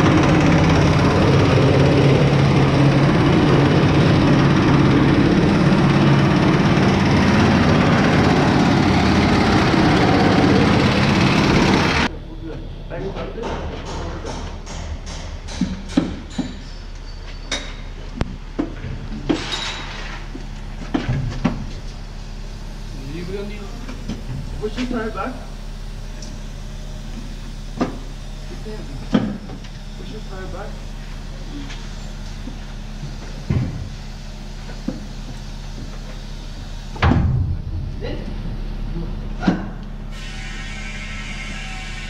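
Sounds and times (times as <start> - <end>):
low shop hum: 0.0 - 42.0
brief hiss: 40.1 - 42.0.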